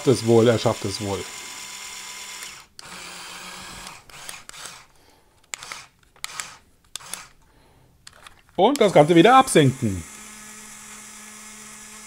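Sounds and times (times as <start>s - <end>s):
small electric motors whirring: 0.0s - 4.9s, 5.5s - 7.4s, 8.1s - 12.0s
sharp clicks of controls: 3.8s - 7.4s, 8.0s - 9.0s.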